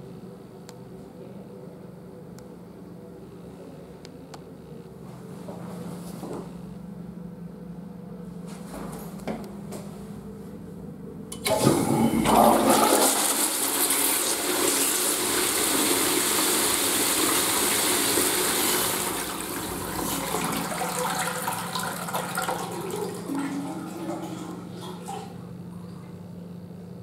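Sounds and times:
toilet flushing water rushing: 11.4 - 25.4.

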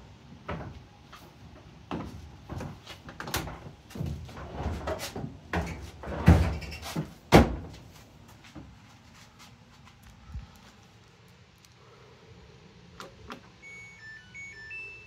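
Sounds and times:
dryer door clunks and knocks: 1.9 - 7.8.

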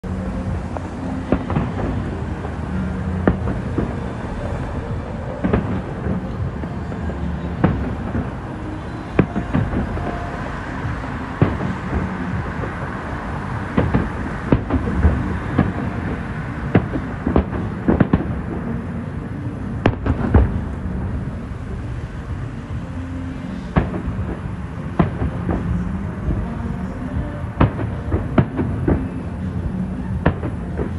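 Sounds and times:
low rumble: 0.0 - 18.8
fireworks bursting with sharp bangs: 0.1 - 30.9.

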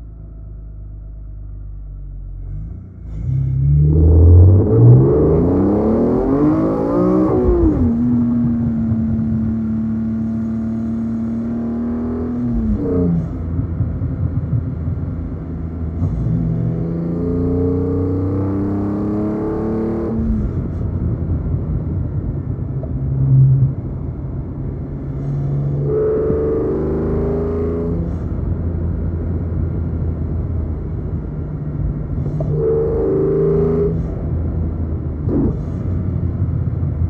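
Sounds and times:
car engine revving: 2.3 - 21.5, 22.1 - 37.0
low boom: 12.3 - 17.2, 20.2 - 26.6.

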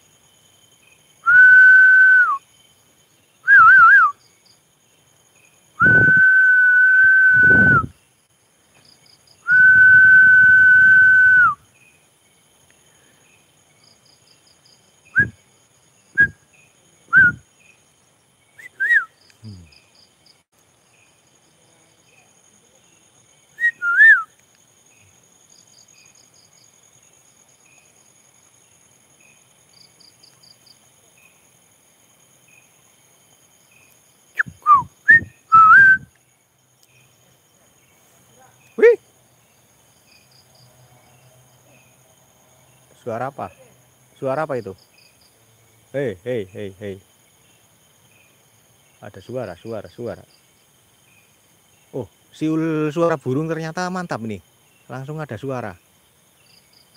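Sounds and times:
crickets chirring: 0.0 - 56.9
man whistling: 1.2 - 2.4, 3.5 - 4.2, 5.8 - 7.9, 9.5 - 11.6, 15.2 - 15.4, 16.2 - 16.4, 17.1 - 17.4, 18.6 - 19.2, 23.6 - 24.3, 34.4 - 36.1.

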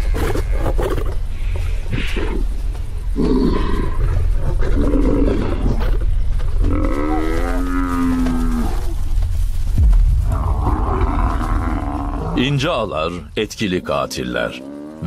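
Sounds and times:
rough growling calls: 0.0 - 9.2, 10.2 - 15.0
buffalo bellowing: 6.6 - 9.0, 10.3 - 12.5, 14.4 - 15.0.

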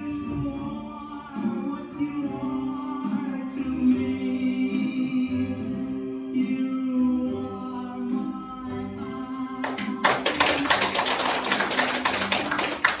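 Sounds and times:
song with sung melody: 0.0 - 13.0
audience applause: 9.7 - 13.0.

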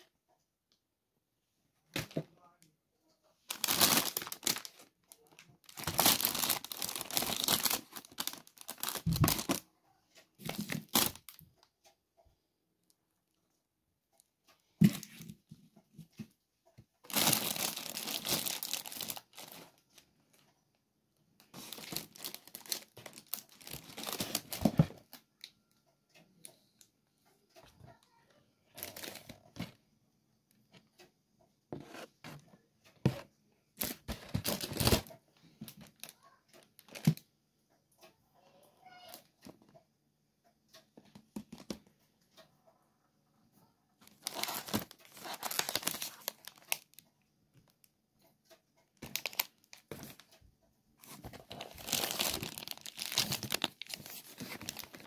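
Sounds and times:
food packaging crinkling: 3.5 - 9.7, 17.1 - 20.1, 21.4 - 25.1, 28.8 - 29.4, 33.8 - 35.1, 44.0 - 47.0, 49.0 - 50.3, 51.0 - 55.0.

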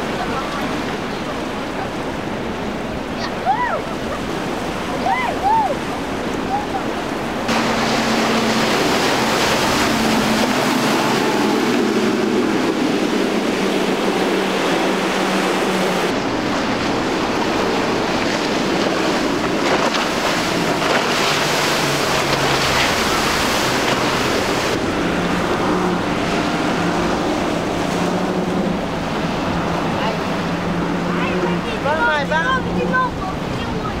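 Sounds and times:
surf and spray hiss: 0.0 - 24.8
powerboat engines running: 0.0 - 34.0.

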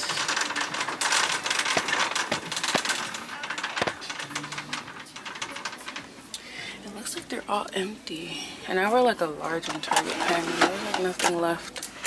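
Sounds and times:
shopping cart rattling: 0.0 - 6.3, 9.4 - 11.7.

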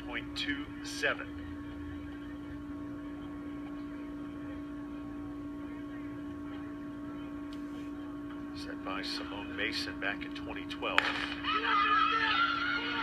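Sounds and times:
electrical hum: 0.0 - 13.0.

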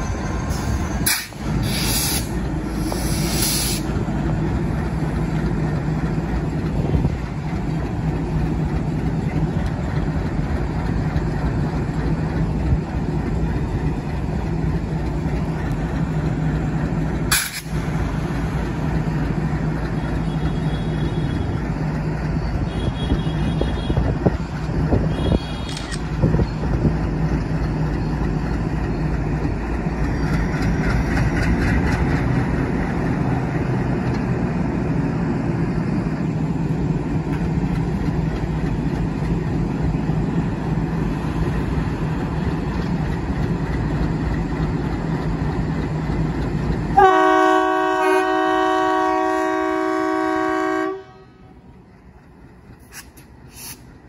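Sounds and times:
diesel locomotive engine chugging: 0.0 - 54.0
locomotive air horn blast: 47.0 - 51.6.

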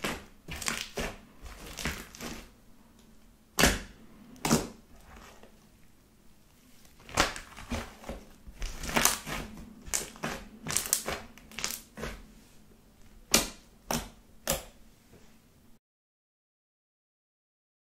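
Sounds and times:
slime clicking and squelching: 0.0 - 2.5, 7.0 - 12.2.

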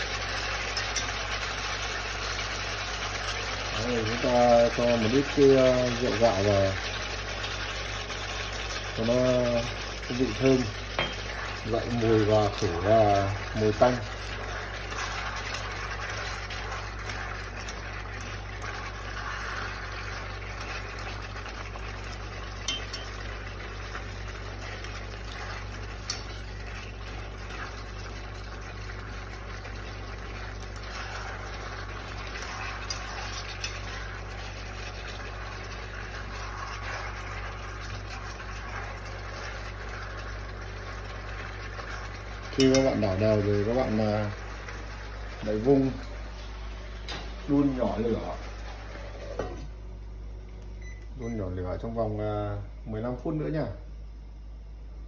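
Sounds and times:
chicken sizzling in a pot: 0.0 - 49.8
steady low hum: 0.0 - 55.0
utensil clinking against pot: 22.6 - 23.2.

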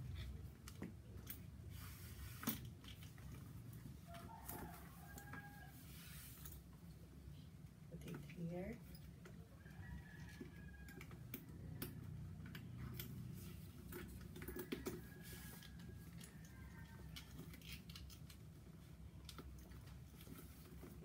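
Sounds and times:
bag strap clicks and rustles: 11.0 - 21.0.

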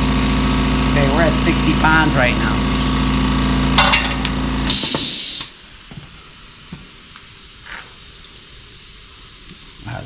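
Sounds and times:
air compressor running: 0.0 - 10.0
loud burst of air hiss: 2.0 - 3.7, 4.4 - 10.0.

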